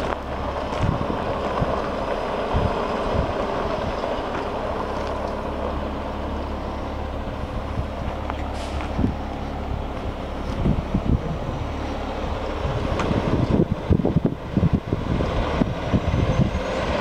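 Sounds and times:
diesel truck engine running: 0:00.0 - 0:17.0.

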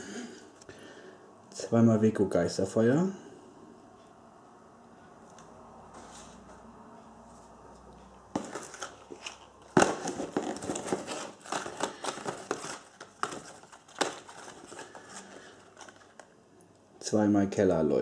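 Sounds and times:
packaging rustling and crinkling: 0:08.3 - 0:16.4
box knock: 0:08.4 - 0:08.9, 0:09.7 - 0:14.5.

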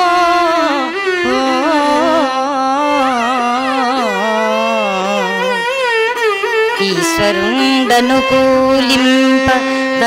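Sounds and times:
violin following melody: 0:00.0 - 0:10.0
woman singing ornamented phrase: 0:01.2 - 0:05.3.

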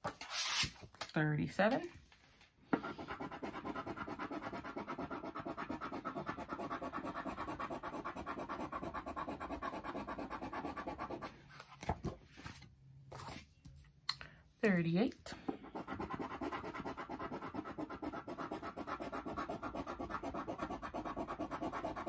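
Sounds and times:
scratching lottery ticket: 0:03.2 - 0:11.2, 0:15.8 - 0:22.0.

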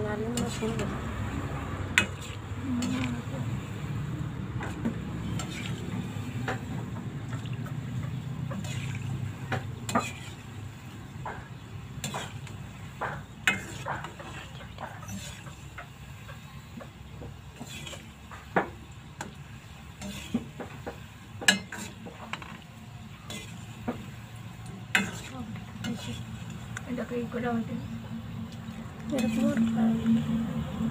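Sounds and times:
frying in hot oil sizzle: 0:00.0 - 0:30.9
metal skimmer scraping pan: 0:02.0 - 0:03.4, 0:04.6 - 0:15.8, 0:17.5 - 0:18.4, 0:19.2 - 0:20.6, 0:21.2 - 0:24.2, 0:24.8 - 0:27.4, 0:29.1 - 0:30.2.

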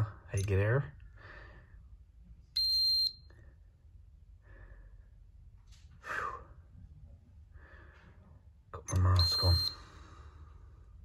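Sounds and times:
person breathing: 0:01.0 - 0:02.0, 0:04.4 - 0:06.7, 0:07.5 - 0:08.4, 0:09.7 - 0:11.0
tester high beep: 0:08.9 - 0:09.8.

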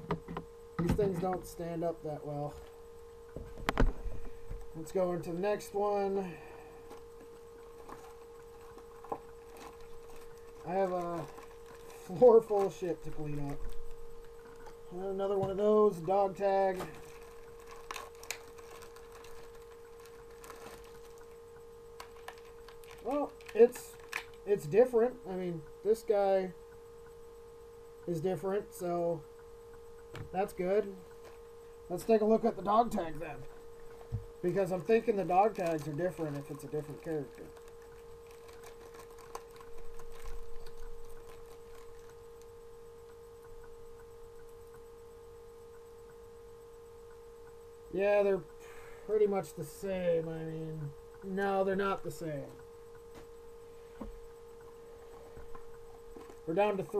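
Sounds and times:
faint hum: 0:00.0 - 0:56.9
plastic packaging crinkling: 0:06.8 - 0:24.5, 0:30.4 - 0:42.5, 0:55.2 - 0:56.5.

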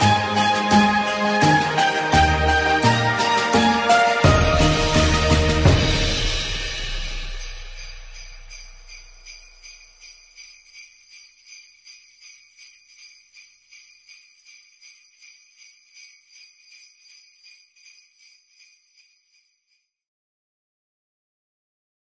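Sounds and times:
background music: 0:00.0 - 0:09.7
jingle bells shaken: 0:00.0 - 0:20.0.

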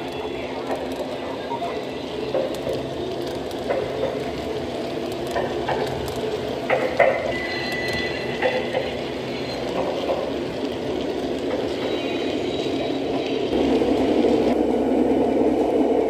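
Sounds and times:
clacks over rail joints: 0:00.0 - 0:14.6
model train wheels rumbling: 0:00.0 - 0:16.0
thin high squeal: 0:07.2 - 0:09.9.

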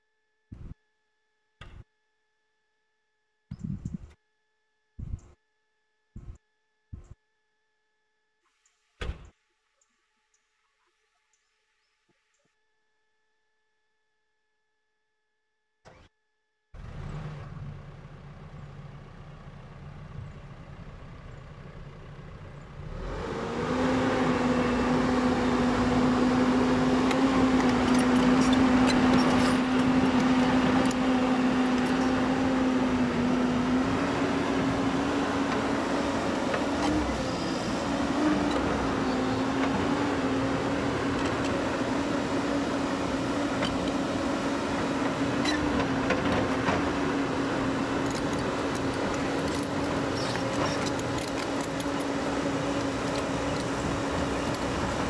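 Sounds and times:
excavator diesel engine whining: 0:16.8 - 0:55.0.

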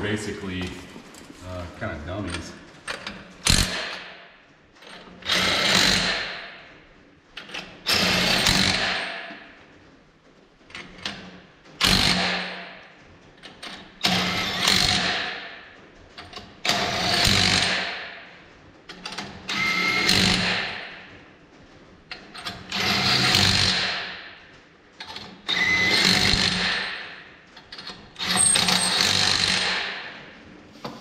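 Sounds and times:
impact wrench bursts: 0:03.4 - 0:04.0, 0:05.2 - 0:06.3, 0:07.9 - 0:09.1, 0:14.0 - 0:15.3, 0:16.7 - 0:18.0, 0:19.5 - 0:20.9, 0:22.7 - 0:24.1, 0:25.5 - 0:27.2, 0:28.2 - 0:30.0.

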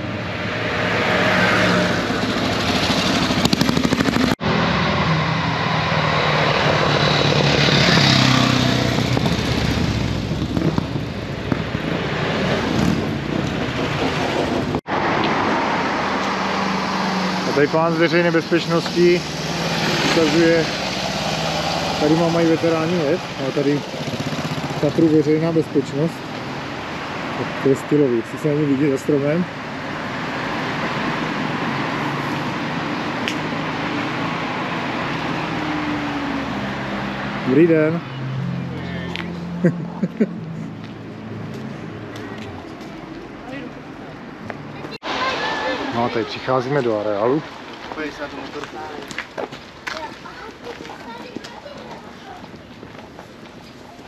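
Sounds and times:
motorcycles riding past: 0:00.0 - 0:43.8
car driving past: 0:13.9 - 0:25.6.

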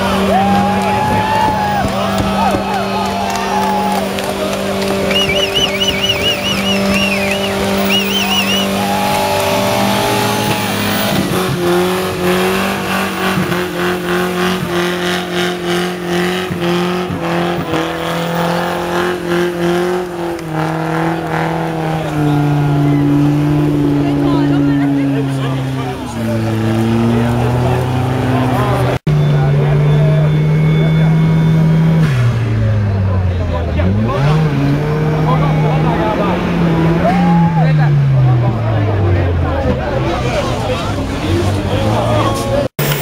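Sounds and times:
tyres squealing: 0:00.0 - 0:15.1
car engine at high revs: 0:00.0 - 0:43.0.

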